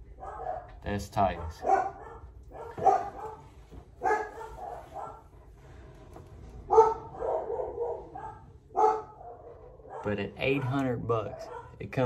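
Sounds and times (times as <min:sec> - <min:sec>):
dog barking: 0:00.0 - 0:05.4, 0:06.6 - 0:12.0.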